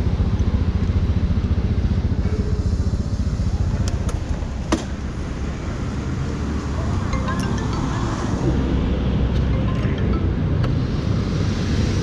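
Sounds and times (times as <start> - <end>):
scooter engine idling: 0.0 - 5.4.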